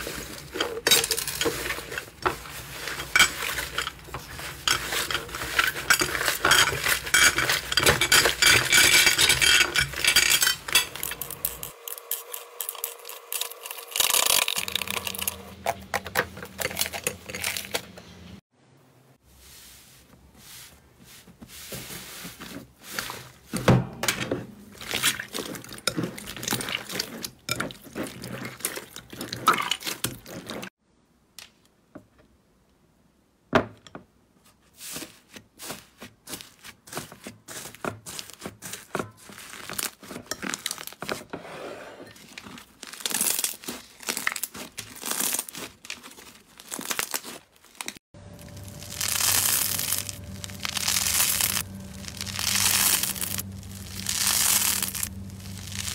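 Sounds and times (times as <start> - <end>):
slime crackling and popping: 42.5 - 55.9.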